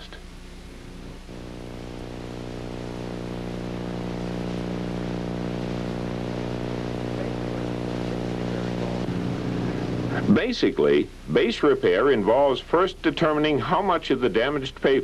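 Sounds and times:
diesel engine droning: 1.1s - 10.4s.

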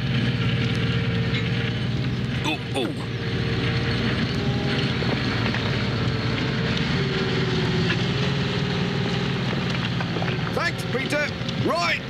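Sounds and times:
bulldozer blade pushing earth and stones: 0.0s - 12.0s
tractor engine running under load: 0.0s - 12.0s.

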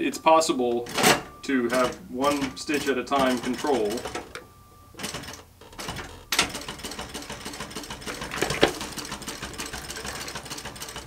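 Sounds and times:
sewing machine stitching: 5.0s - 11.0s.

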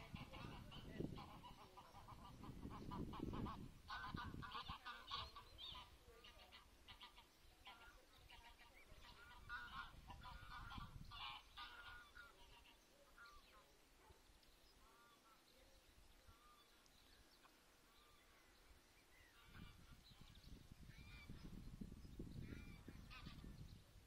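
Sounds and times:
geese calling: 0.0s - 13.6s, 22.4s - 23.4s.

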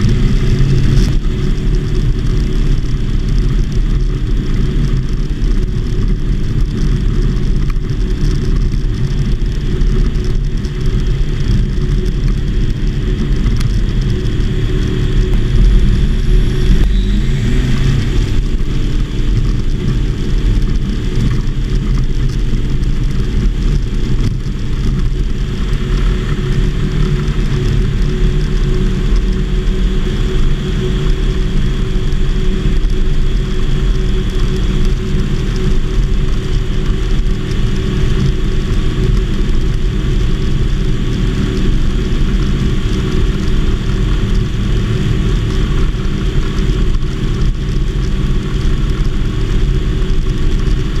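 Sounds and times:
light aircraft engine and propeller: 0.0s - 51.0s.

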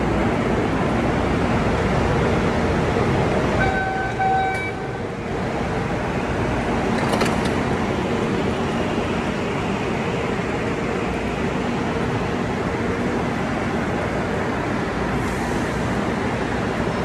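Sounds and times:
train motor and ventilation noise: 0.0s - 17.0s
short tone signal: 3.6s - 4.9s
train doors shutting: 3.6s - 9.5s.

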